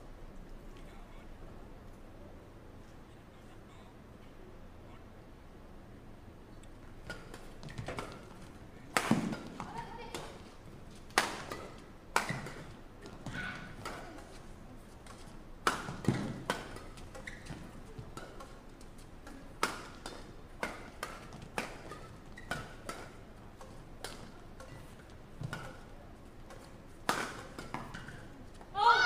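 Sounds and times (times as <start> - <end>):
badminton rackets hitting shuttlecock: 7.0 - 14.4, 15.0 - 29.0.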